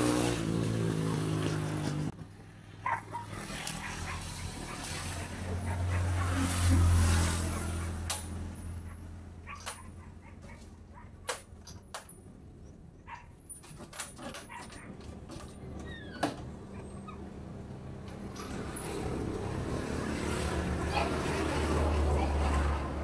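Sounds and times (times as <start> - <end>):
short high squeaks: 15.6 - 17.3.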